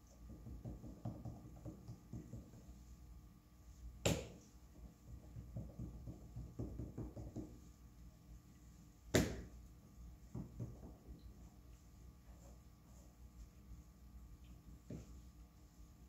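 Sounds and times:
hands rubbing clay: 7.2s - 16.0s.

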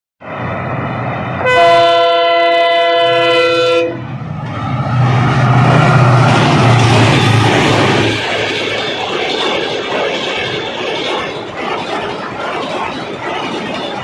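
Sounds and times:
train rumbling over rails: 0.2s - 14.0s
locomotive horn blast: 1.4s - 4.1s.

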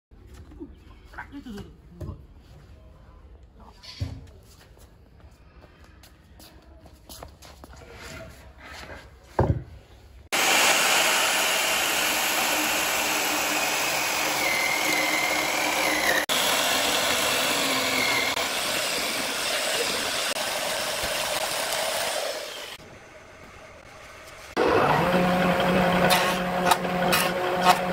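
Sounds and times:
electric chainsaw cutting log: 10.3s - 22.9s, 24.5s - 27.9s.

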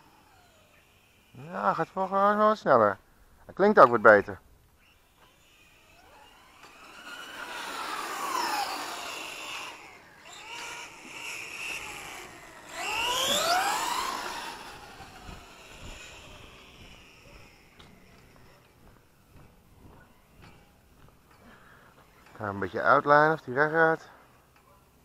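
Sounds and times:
toy car motor whining: 0.0s - 2.6s, 3.8s - 18.8s.

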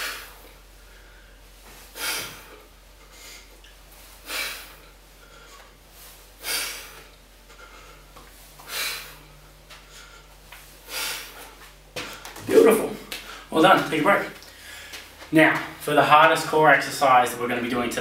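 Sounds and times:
man breathing out hard: 0.0s - 3.5s, 4.2s - 12.2s.

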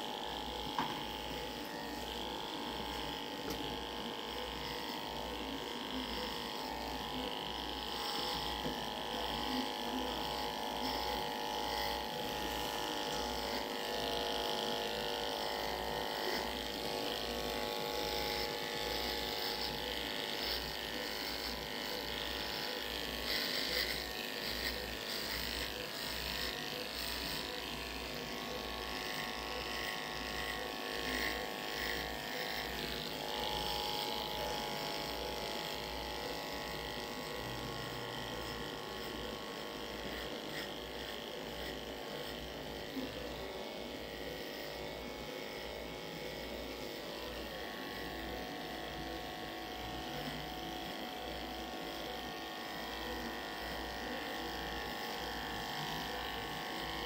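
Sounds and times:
electric clippers buzzing: 0.0s - 57.0s.

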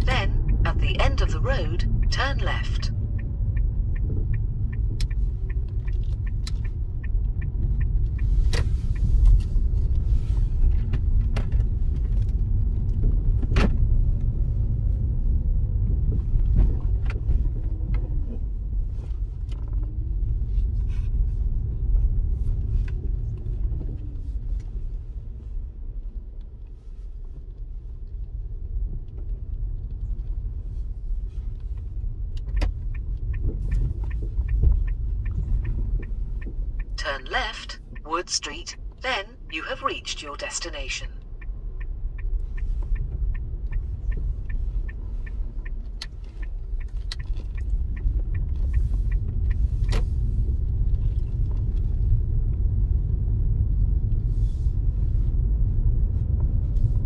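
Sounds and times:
turn signal ticking: 0.0s - 13.3s, 31.6s - 53.7s
car engine and road rumble: 0.0s - 57.0s.

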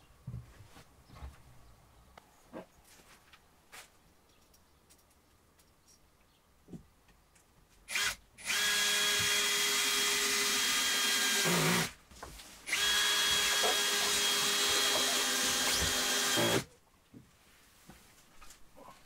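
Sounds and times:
cordless drill running: 7.9s - 11.9s, 12.7s - 16.7s.

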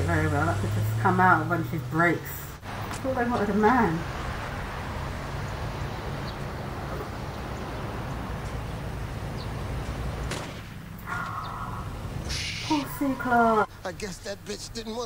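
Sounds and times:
low vehicle hum: 0.0s - 15.0s
outdoor street noise: 0.0s - 15.0s.

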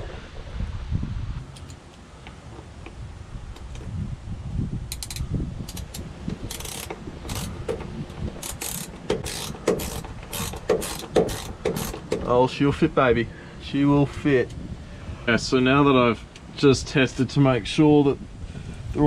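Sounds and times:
socket ratchet clicking: 4.9s - 12.3s.

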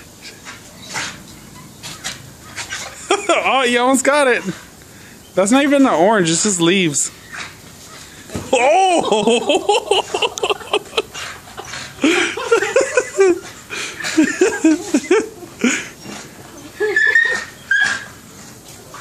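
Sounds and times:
dog whining: 13.2s - 19.0s.

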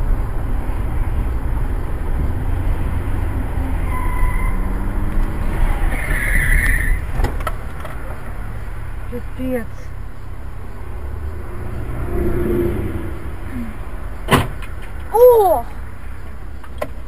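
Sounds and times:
car road and engine rumble: 0.0s - 17.0s.

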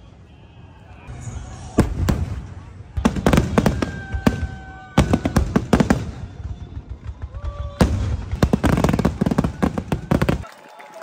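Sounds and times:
fireworks bangs: 1.1s - 10.8s.

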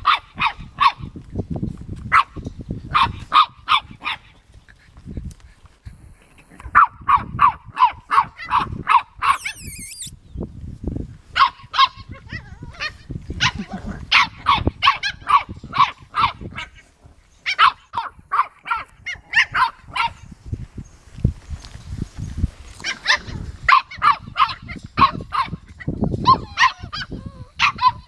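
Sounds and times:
puppy barking: 0.0s - 1.1s, 2.1s - 4.3s, 6.7s - 10.1s, 11.4s - 16.7s, 17.4s - 20.2s, 22.8s - 25.6s, 26.2s - 28.0s.

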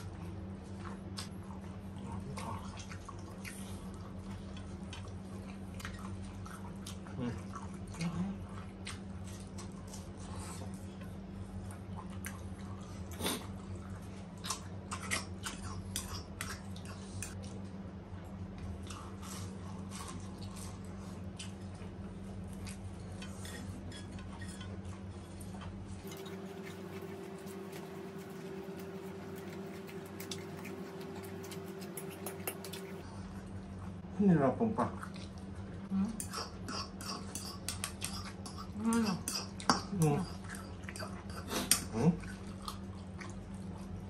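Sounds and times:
chewing: 0.0s - 34.0s, 34.8s - 44.0s
low electrical hum: 0.0s - 44.0s
fork clicking on dishes: 26.0s - 33.0s, 36.2s - 38.6s.

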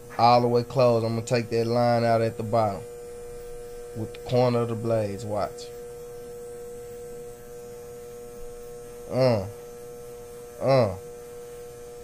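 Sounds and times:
electric hair clippers humming: 0.0s - 12.0s
man's short vocal sounds: 9.1s - 9.5s, 10.6s - 11.0s.

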